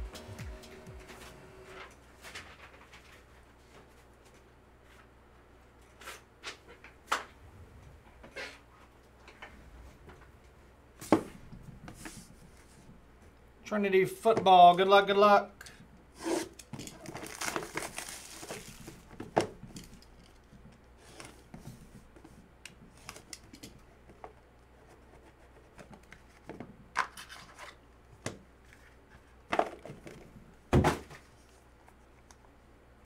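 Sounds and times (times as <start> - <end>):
handling of box and cards: 16.7 - 22.3
plastic wrap crinkling: 16.9 - 19.1.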